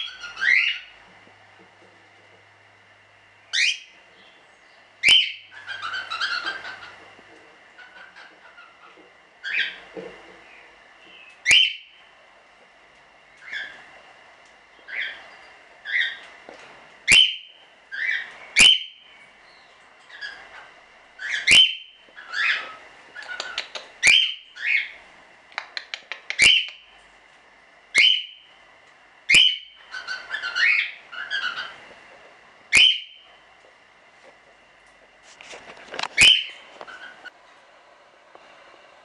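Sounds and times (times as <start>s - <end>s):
soft bird chattering: 3.5s - 7.0s, 17.1s - 25.0s
cockatiel chirps: 5.0s - 6.9s, 21.2s - 25.0s, 29.3s - 31.8s, 32.7s - 33.2s, 36.2s - 37.2s.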